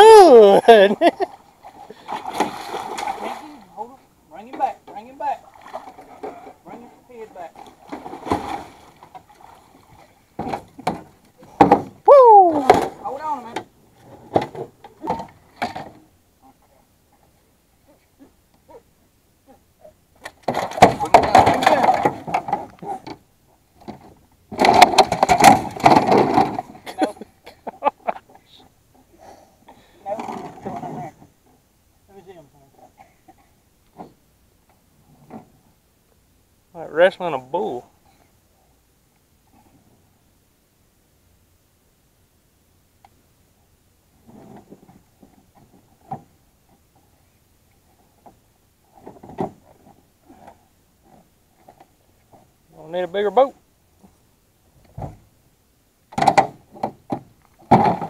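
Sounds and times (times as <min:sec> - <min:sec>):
knocks and scrapes in boat: 0:01.4 - 0:03.4, 0:04.4 - 0:12.0, 0:12.7 - 0:16.8, 0:20.2 - 0:23.2, 0:23.8 - 0:27.1, 0:30.1 - 0:31.6, 0:32.8 - 0:34.2, 0:35.0 - 0:35.7, 0:44.2 - 0:47.2, 0:47.8 - 0:52.5, 0:56.1 - 0:58.0
fish banging in cooler: 0:24.5 - 0:26.8, 0:56.2 - 0:58.0.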